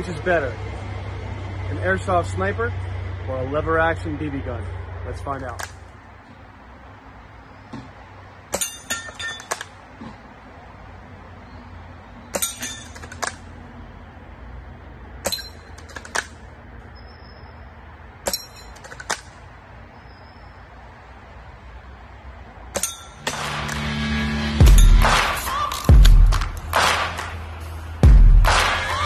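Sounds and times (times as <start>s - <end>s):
metallic pings of targets: 8.5s - 9.8s, 12.2s - 13.4s, 15.2s - 16.4s, 18.2s - 19.3s, 22.7s - 26.8s.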